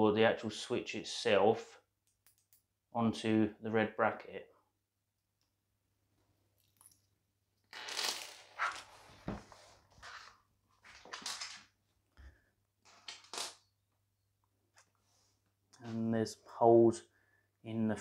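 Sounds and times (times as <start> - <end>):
rustling and scraping of parts: 7.8 - 13.6.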